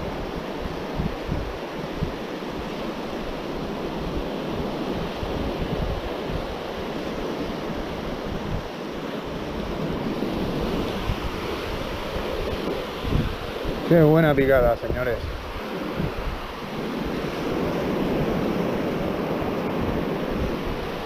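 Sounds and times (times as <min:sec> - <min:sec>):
surf waves washing on sand: 0:00.0 - 0:21.0
wind buffeting microphone: 0:00.0 - 0:21.0.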